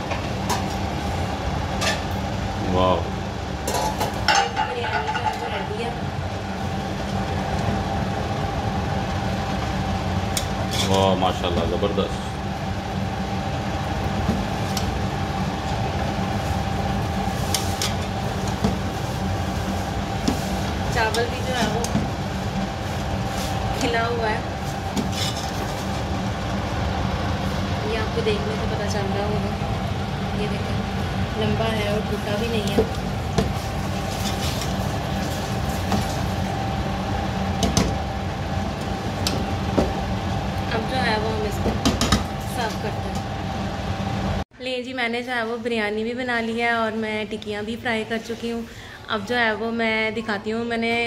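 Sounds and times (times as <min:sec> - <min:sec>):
machine hum with whine: 0:00.0 - 0:44.6
metal spatula scraping a pot: 0:10.6 - 0:11.0, 0:25.0 - 0:26.0.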